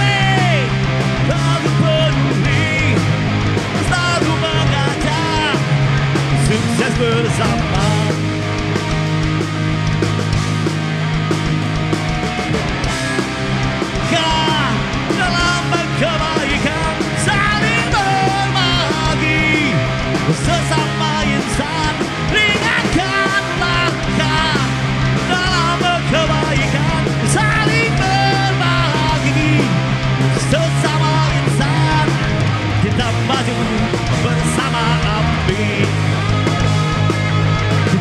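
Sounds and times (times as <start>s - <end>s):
man singing into a microphone: 0.0s - 3.1s, 3.8s - 5.7s, 6.3s - 8.2s, 14.0s - 36.2s
rock band playing: 0.0s - 38.0s.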